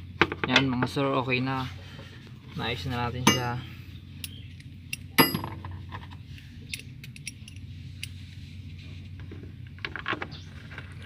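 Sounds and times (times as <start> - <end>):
sharp metallic clinks: 3.2 - 5.6.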